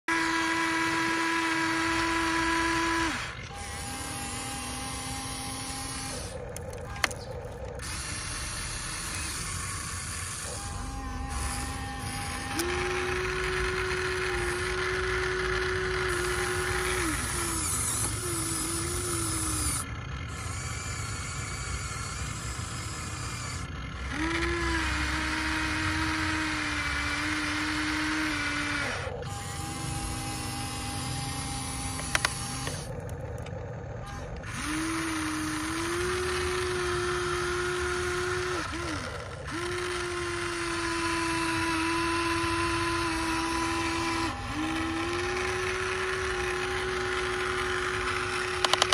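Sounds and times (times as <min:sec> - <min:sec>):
electric motors whining: 0:00.1 - 0:48.9
sharp click: 0:48.6 - 0:48.9.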